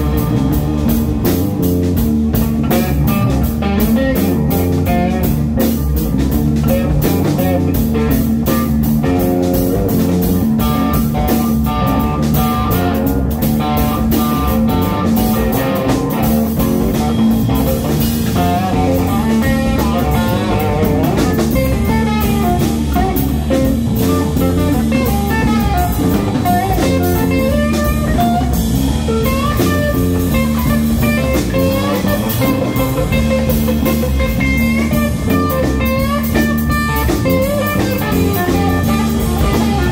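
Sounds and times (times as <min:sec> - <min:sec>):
blues-rock band playing live: 0:00.0 - 0:39.9.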